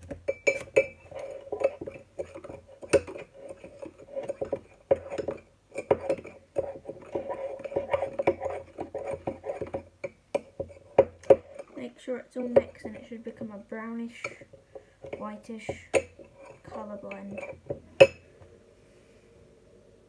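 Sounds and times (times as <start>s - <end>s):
spoon clinking and scraping mug: 0.3s - 11.8s, 16.0s - 18.2s.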